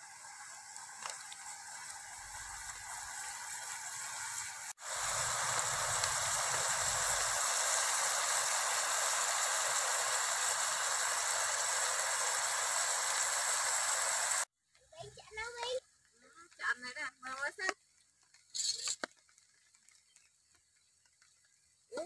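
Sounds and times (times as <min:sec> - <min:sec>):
food sizzling in a pot: 0:00.0 - 0:14.5.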